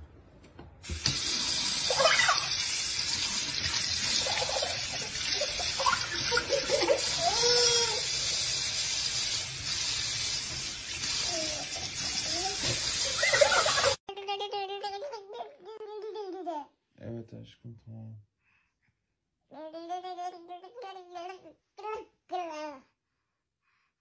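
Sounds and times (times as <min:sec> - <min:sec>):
tap running into sink: 0:00.8 - 0:01.4
child giggling and squealing: 0:01.9 - 0:02.5, 0:04.2 - 0:08.1, 0:12.3 - 0:16.7.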